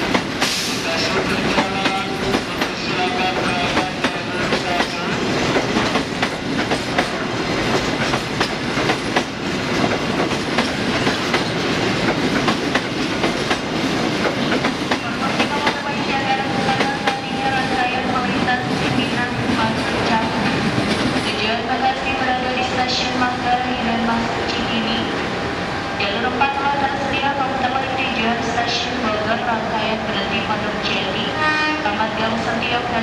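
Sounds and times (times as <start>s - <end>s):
wheels clacking over rail joints: 0.0s - 15.8s
freight train wheels rushing: 0.0s - 29.2s.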